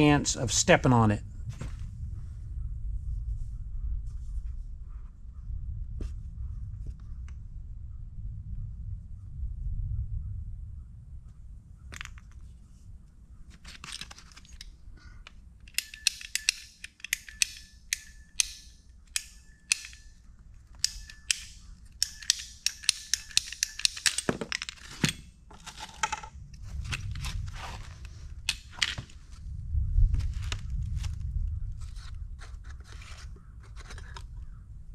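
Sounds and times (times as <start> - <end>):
plastic fittings clicking and scraping: 13.5 - 20.0, 20.7 - 26.3, 31.8 - 34.4.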